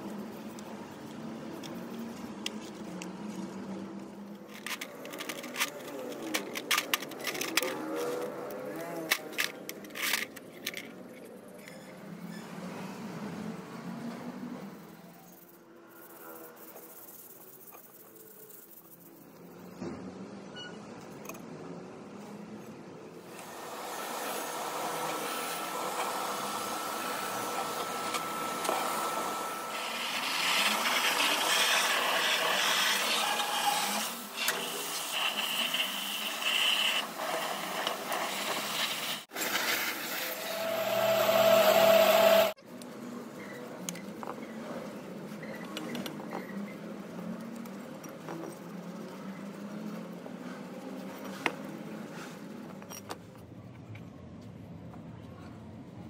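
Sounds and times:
pressure washer spray hissing: 23.4s - 42.6s.

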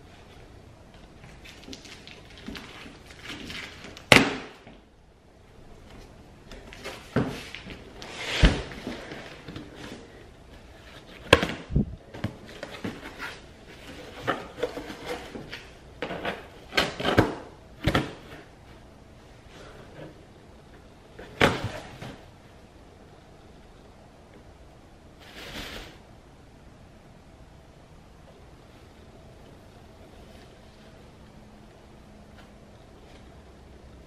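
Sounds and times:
cardboard rustling and scraping: 5.8s - 18.8s, 25.2s - 26.0s.

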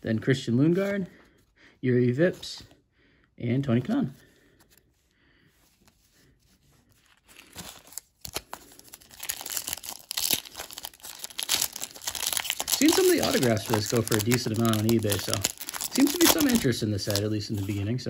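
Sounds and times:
foil wrapper crinkling and tearing: 7.1s - 17.8s.

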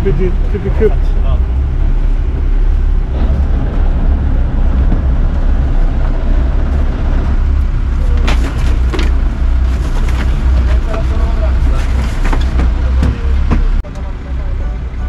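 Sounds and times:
boat engine rumbling: 0.0s - 15.0s
sharp knocks: 12.2s - 13.8s.

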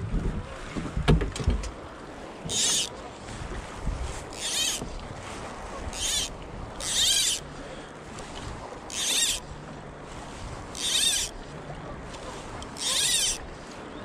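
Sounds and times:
fly line zipping through rod guides: 2.5s - 3.0s, 4.2s - 4.9s, 5.9s - 7.5s, 8.8s - 9.5s, 10.6s - 11.4s, 12.6s - 13.4s.

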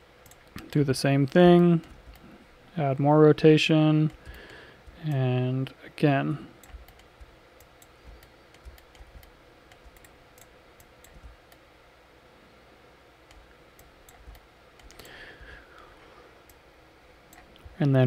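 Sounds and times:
mouse and keyboard clicking: 1.8s - 2.3s, 6.6s - 11.6s, 13.3s - 15.2s.

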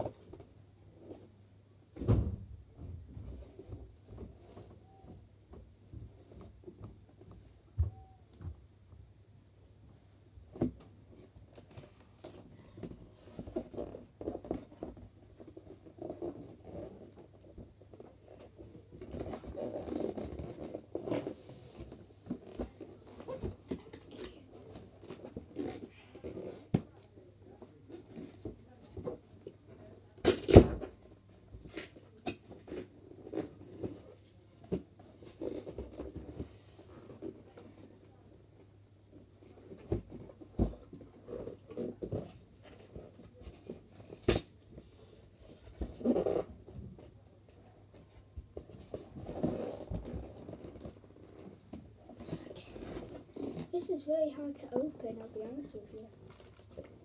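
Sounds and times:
cardboard box rustling and scraping: 48.6s - 51.5s.

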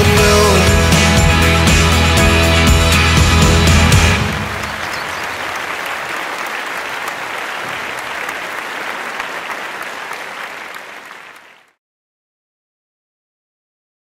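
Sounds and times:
audience applause: 3.0s - 11.8s.

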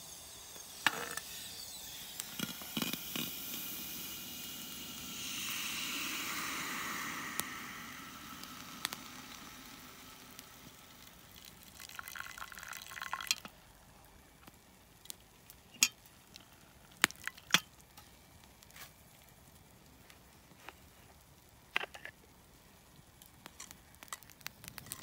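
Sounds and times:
liquid poured into pot: 2.2s - 13.6s.

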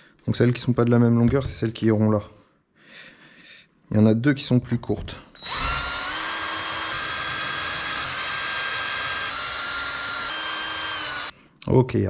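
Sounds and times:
small electric motor whining: 5.4s - 11.3s.

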